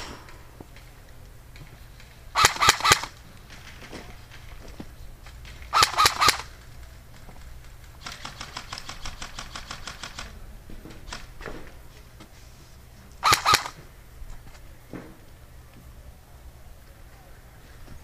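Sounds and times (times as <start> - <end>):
airsoft gun shots: 0.0 - 0.8, 2.4 - 4.0, 5.7 - 6.5, 8.0 - 10.4, 13.2 - 13.8.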